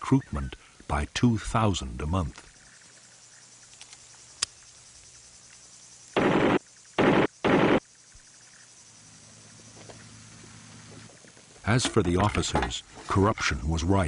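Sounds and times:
machine gun bursts: 6.2s - 7.8s.

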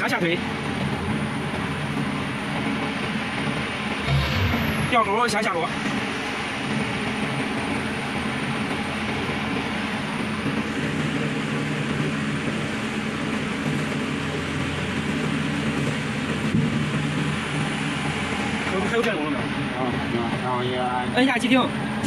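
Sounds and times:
diesel generator drone: 3.6s - 6.2s.

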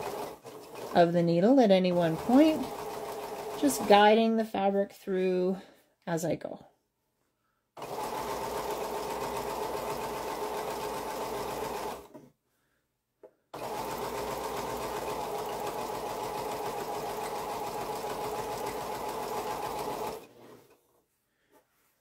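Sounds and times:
sewing machine stitching: 0.0s - 1.1s, 1.8s - 4.0s, 7.8s - 12.2s, 13.6s - 20.8s.

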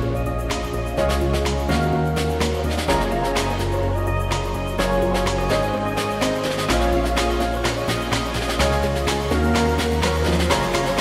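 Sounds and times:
electronic music with synth and beat: 0.0s - 11.0s.

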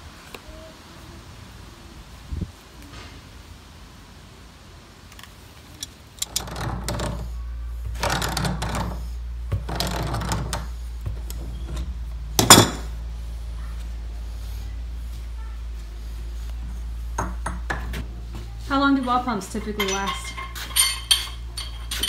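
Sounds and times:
steady low hum: 5.8s - 22.0s
metal scraping and grinding: 19.0s - 22.0s.

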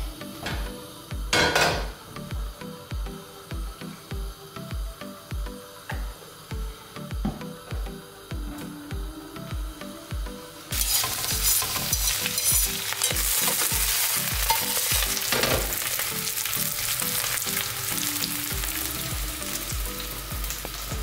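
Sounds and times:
spinach sizzling in a frying pan: 10.6s - 21.0s.

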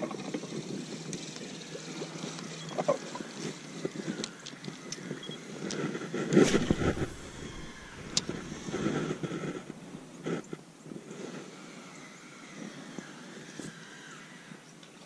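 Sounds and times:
wind on microphone: 6.0s - 11.6s
water lapping: 6.4s - 10.3s.

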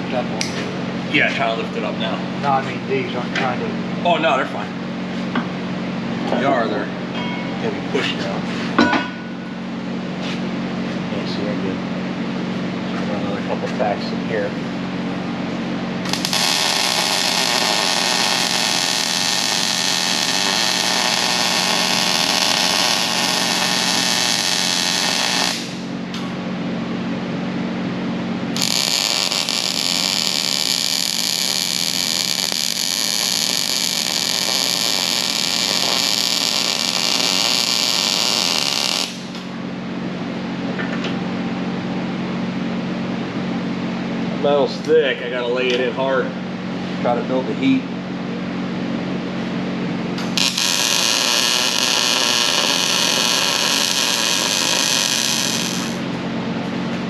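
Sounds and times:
low hum: 0.0s - 57.0s
welding arc crackling and hissing: 16.0s - 26.0s, 28.6s - 39.5s, 50.2s - 56.1s.

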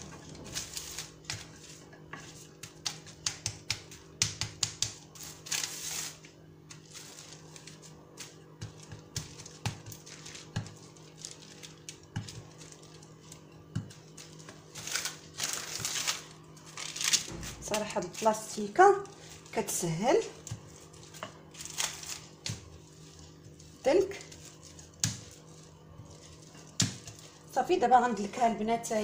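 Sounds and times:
plastic wrap crinkling: 5.2s - 27.5s.

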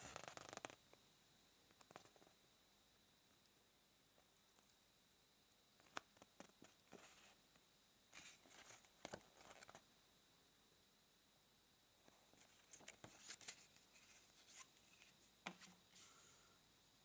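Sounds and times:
paper leaflet rustling: 8.2s - 9.8s, 12.3s - 16.2s.

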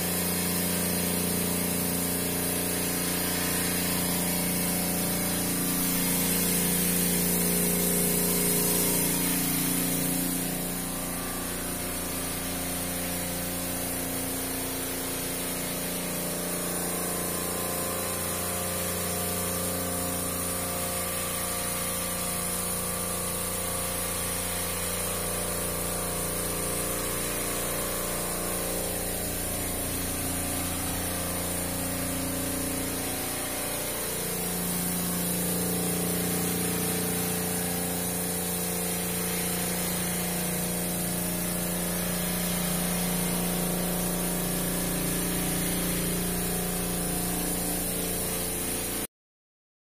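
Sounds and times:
motor and pump machinery hum: 0.0s - 49.1s
machinery hiss: 1.4s - 16.6s.

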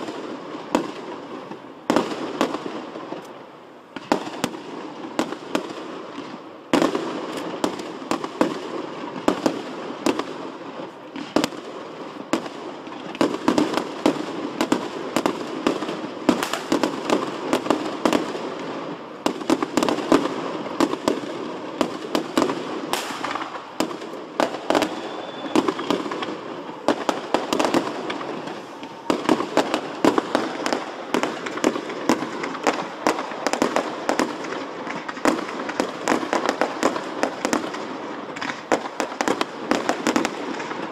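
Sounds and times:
fireworks bursting: 0.0s - 40.9s.

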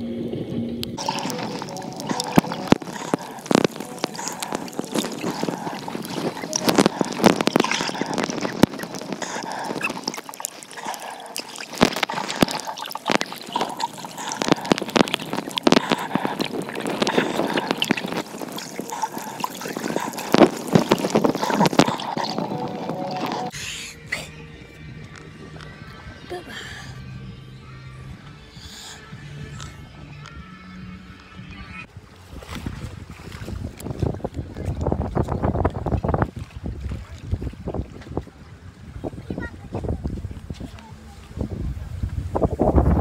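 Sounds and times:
underwater gurgling: 0.0s - 23.6s
crackling clicks: 0.8s - 23.5s.

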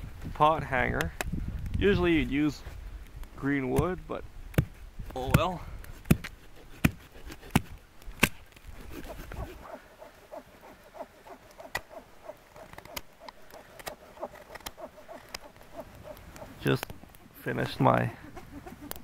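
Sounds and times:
knife cutting strokes on wood: 6.0s - 17.2s.

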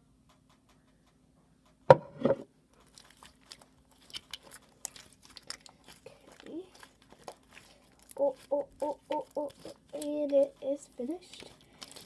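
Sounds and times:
slime crackling and popping: 2.8s - 12.0s.

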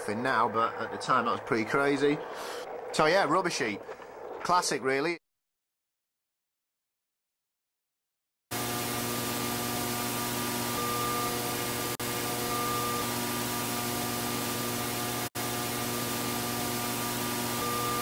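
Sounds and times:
tv static hiss: 8.6s - 18.0s.

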